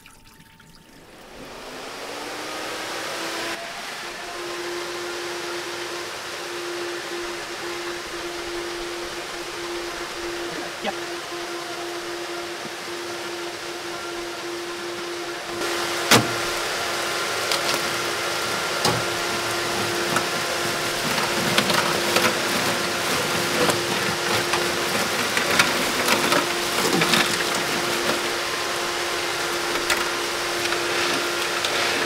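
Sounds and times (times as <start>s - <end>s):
electric fan humming: 0.0s - 32.0s
ice cubes clattering: 19.0s - 32.0s.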